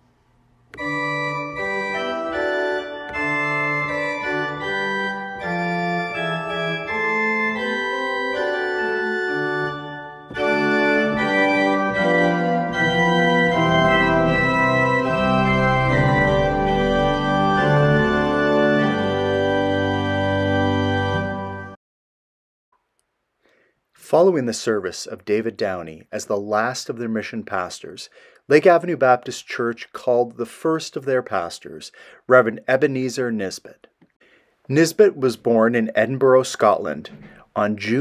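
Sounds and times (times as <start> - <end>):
organ chords: 0.7 - 21.8.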